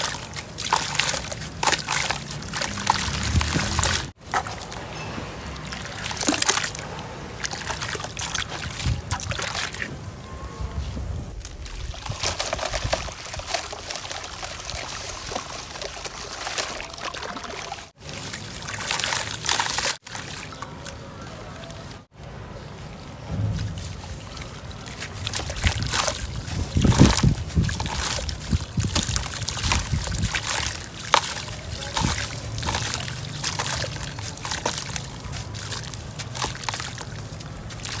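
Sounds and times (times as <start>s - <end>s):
gritty crackling of crumbling chunks: 0.0s - 6.8s, 23.3s - 38.0s
water sloshing and splashing: 0.0s - 38.0s.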